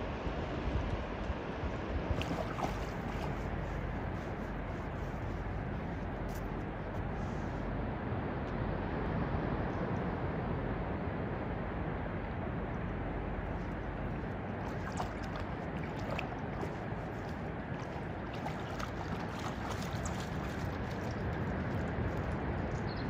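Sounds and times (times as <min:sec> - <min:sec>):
dog splashing in water: 0:02.2 - 0:03.7, 0:14.6 - 0:22.3.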